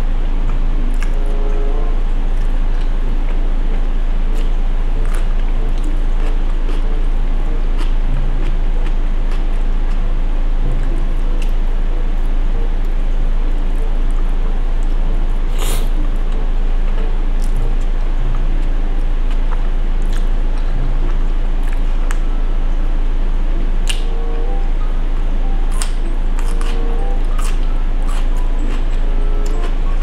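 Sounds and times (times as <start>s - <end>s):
loud low hum: 0.0s - 30.0s
person eating noodles: 14.8s - 22.3s, 25.6s - 30.0s.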